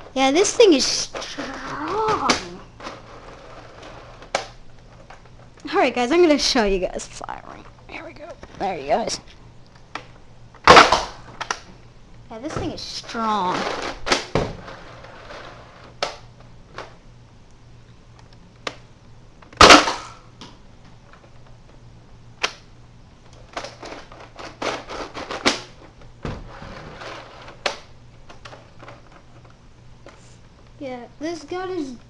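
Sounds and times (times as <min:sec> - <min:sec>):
dart blaster firing crack: 0:10.6 - 0:11.6, 0:19.6 - 0:20.2.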